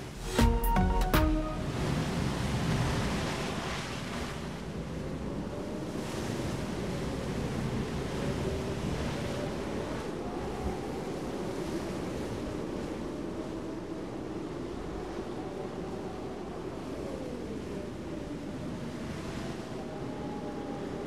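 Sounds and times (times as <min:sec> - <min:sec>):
choppy sea waves: 0:00.0 - 0:21.0.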